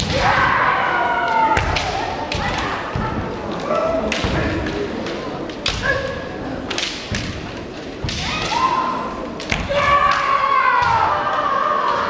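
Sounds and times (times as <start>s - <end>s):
people shouting: 0.0s - 4.6s, 8.0s - 12.0s
bamboo swords striking: 1.5s - 8.8s.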